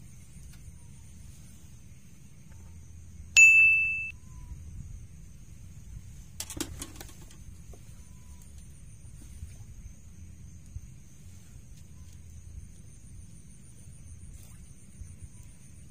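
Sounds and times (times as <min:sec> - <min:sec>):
bite bell ding: 0:03.4 - 0:04.1.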